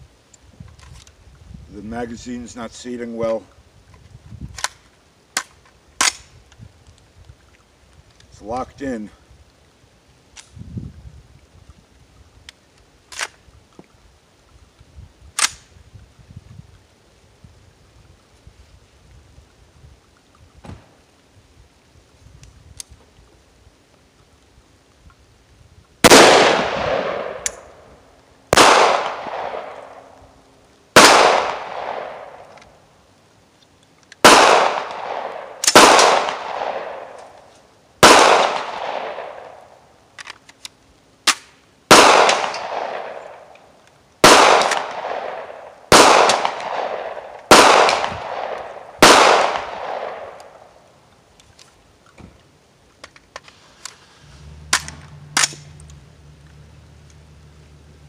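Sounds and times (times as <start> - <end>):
pistol shots with echo: 26.0 - 27.8, 28.5 - 30.0, 31.0 - 32.5, 34.2 - 37.2, 38.0 - 39.6, 41.9 - 43.4, 44.2 - 50.6.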